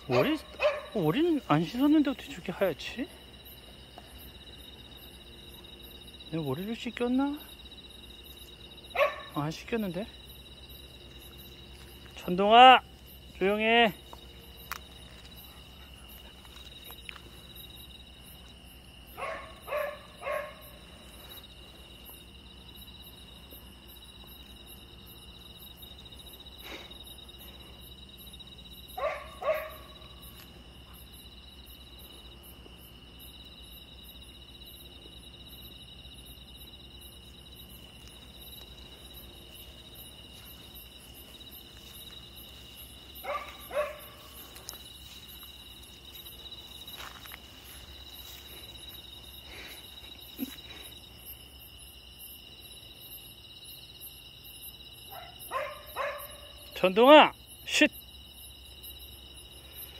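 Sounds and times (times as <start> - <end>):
dog barking: 0.0 - 1.2, 8.9 - 9.4, 19.1 - 20.9, 28.9 - 30.2, 43.2 - 44.6, 55.1 - 56.8
crickets chirping: 0.0 - 59.9.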